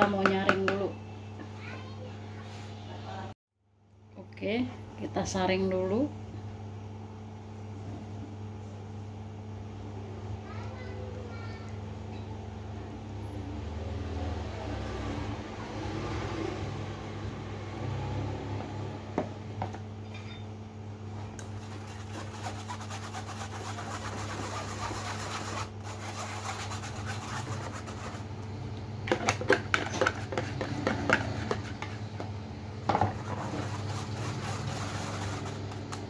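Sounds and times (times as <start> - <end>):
steady low hum: 16.2 - 36.0
whisk scraping metal sieve: 21.4 - 28.3, 33.1 - 35.9.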